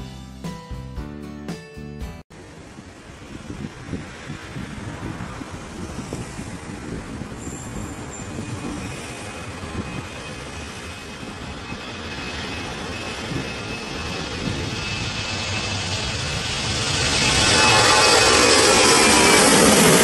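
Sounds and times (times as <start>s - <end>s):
distant jet engine rumble: 2.4s - 20.0s
thin steady whine: 7.3s - 20.0s.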